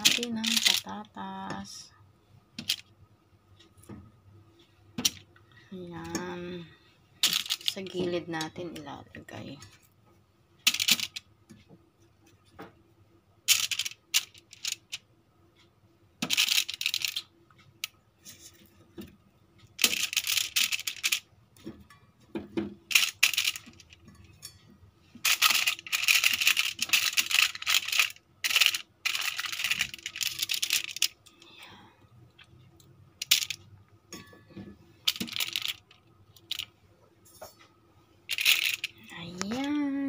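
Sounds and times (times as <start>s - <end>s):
aluminium foil crinkling: 25.3s - 31.0s.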